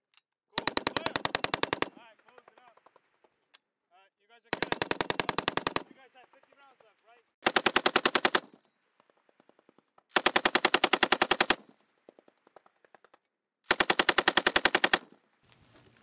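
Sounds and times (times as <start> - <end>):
machine gun bursts: 0.6 - 2.8, 4.5 - 6.2, 7.4 - 8.6, 9.4 - 11.8, 13.7 - 15.2.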